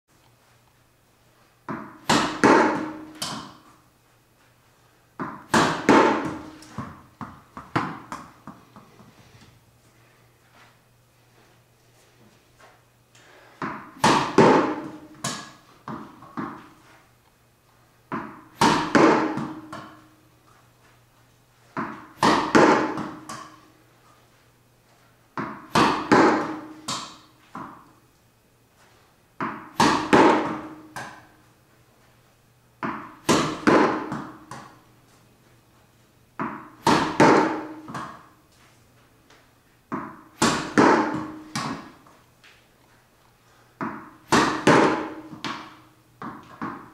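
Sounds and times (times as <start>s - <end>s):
ball bouncing off walls and floor: 1.6s - 3.8s, 5.2s - 9.5s, 12.2s - 17.0s, 18.1s - 21.0s, 21.7s - 23.8s, 25.3s - 28.0s, 29.3s - 31.5s, 32.8s - 35.2s, 36.4s - 38.6s, 39.2s - 42.6s, 43.8s - 46.9s
racket hitting tennis ball: 1.6s - 3.8s, 5.2s - 9.0s, 13.6s - 17.0s, 18.1s - 20.2s, 21.7s - 23.8s, 25.4s - 27.9s, 29.4s - 31.4s, 32.8s - 34.9s, 36.4s - 38.4s, 39.3s - 42.2s, 43.8s - 46.9s.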